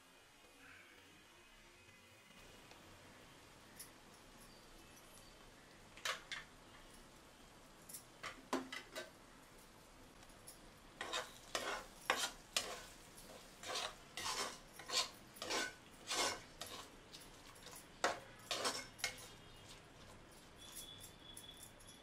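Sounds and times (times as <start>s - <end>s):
faint sizzling: 0.0s - 21.8s
metal spatula scraping a pot: 11.0s - 21.0s.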